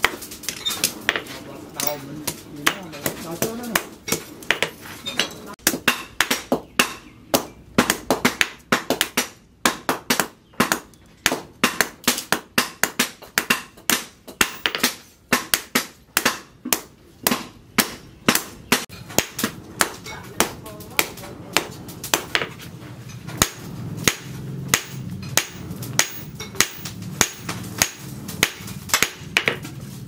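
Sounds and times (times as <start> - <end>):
hammer striking metal on anvil: 23.3 - 29.6.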